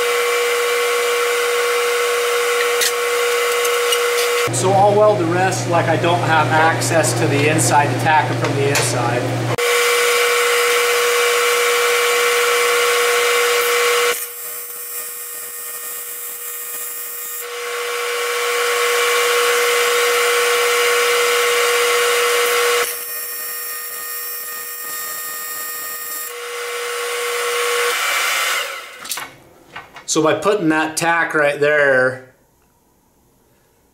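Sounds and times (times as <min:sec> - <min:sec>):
welding arc buzzing: 0:00.0 - 0:04.6, 0:08.9 - 0:29.2.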